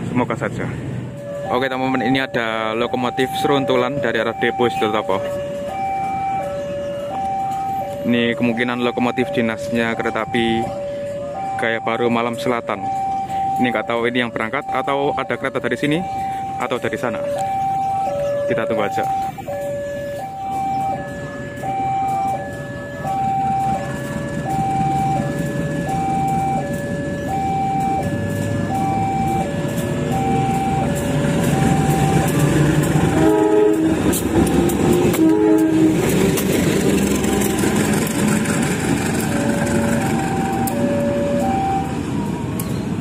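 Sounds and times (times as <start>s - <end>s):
locomotive diesel engine rumble: 0.0s - 43.0s
level crossing alarm two tones: 1.2s - 35.9s, 39.1s - 42.7s
locomotive horn blasts: 31.9s - 36.6s.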